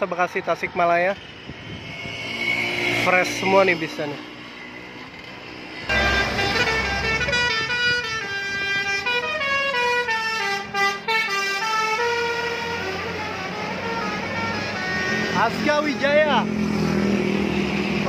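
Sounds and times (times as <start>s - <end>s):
coach engine rumble: 5.1s - 11.3s
multi-note air horn tune: 5.9s - 16.0s.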